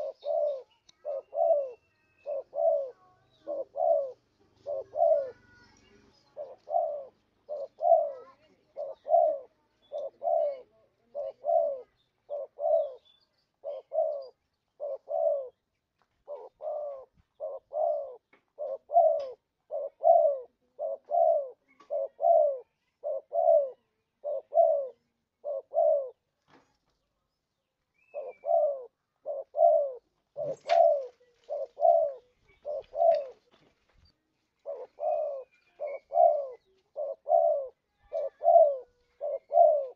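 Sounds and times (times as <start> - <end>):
dove cooing: 0.0 - 15.6, 16.2 - 26.3, 28.0 - 33.6, 34.6 - 39.9.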